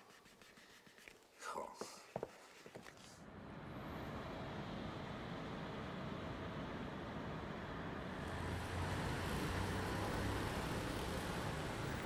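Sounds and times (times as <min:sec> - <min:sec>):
city traffic hum: 0:02.8 - 0:12.0.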